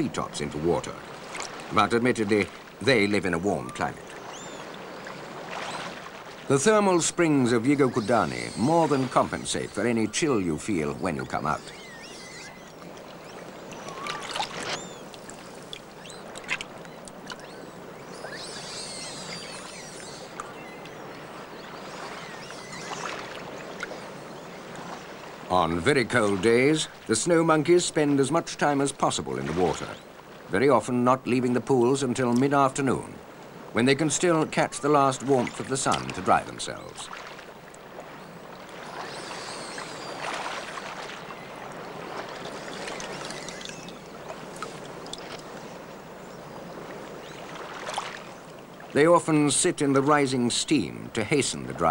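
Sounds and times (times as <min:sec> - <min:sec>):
flowing water rushing: 0:00.0 - 0:51.9
high thin chirping calls: 0:07.0 - 0:25.2, 0:38.2 - 0:47.5.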